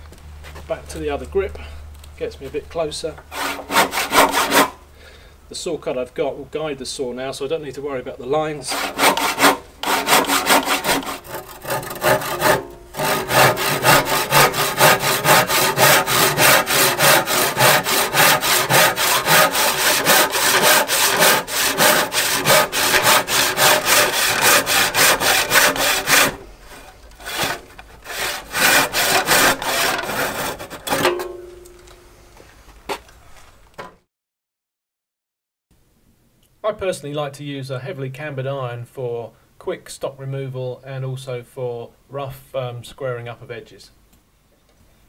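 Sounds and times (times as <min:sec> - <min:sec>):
handsaw cutting wood: 0:03.3 - 0:04.8, 0:08.6 - 0:31.1.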